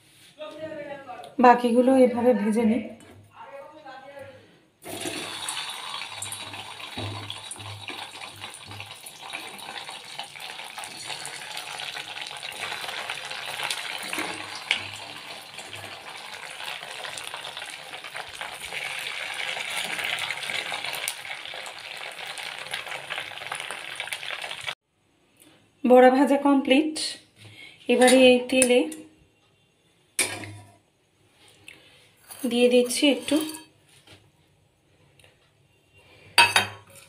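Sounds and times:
food sizzling in hot oil: 0:04.8 - 0:24.8.

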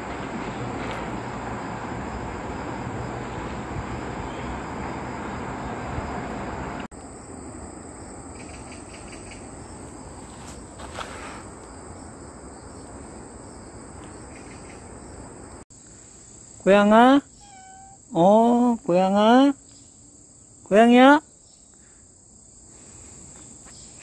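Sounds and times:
distant road traffic: 0:00.0 - 0:16.1
crickets and insects chirping: 0:00.0 - 0:24.0
short pulsed insect trills: 0:06.9 - 0:24.0.

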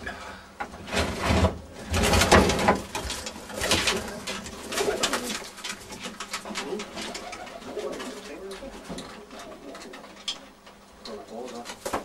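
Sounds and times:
rustling and knocks: 0:00.6 - 0:10.9
pigeons cooing: 0:03.1 - 0:12.0.

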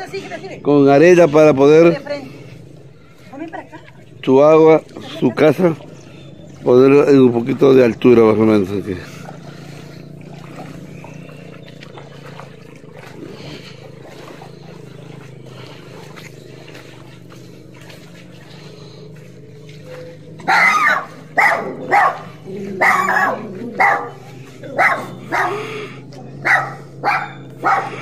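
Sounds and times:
low background hum: 0:00.0 - 0:28.0
dog barking: 0:20.4 - 0:25.7, 0:26.4 - 0:28.0.

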